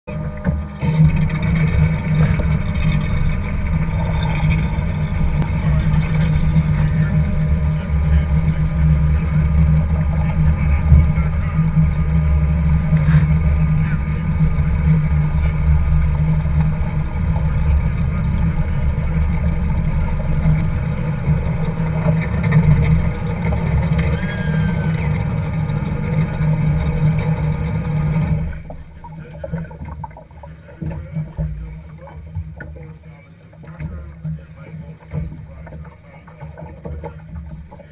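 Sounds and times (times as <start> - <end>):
outboard engine rumbling: 0.0 - 37.9
water splashing around hull: 0.1 - 37.9.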